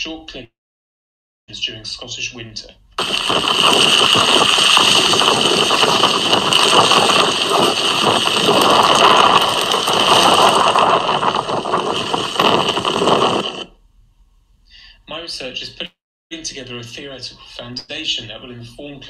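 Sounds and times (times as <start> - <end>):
wind buffeting microphone: 3.0 - 13.7.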